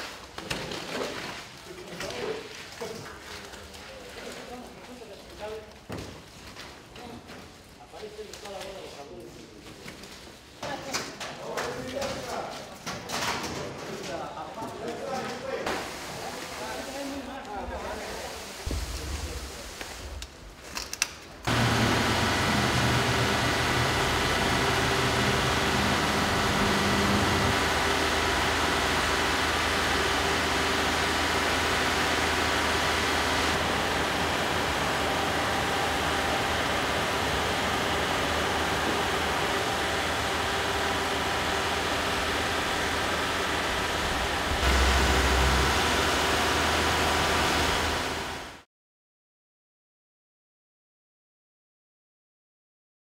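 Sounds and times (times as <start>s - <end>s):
steady mechanical hum: 20.8s - 48.6s
low drone: 21.5s - 48.6s.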